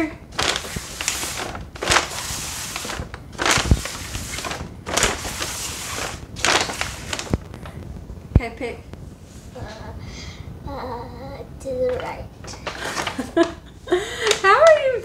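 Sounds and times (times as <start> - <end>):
bags rustling and crinkling: 0.0 - 7.9, 11.9 - 13.6.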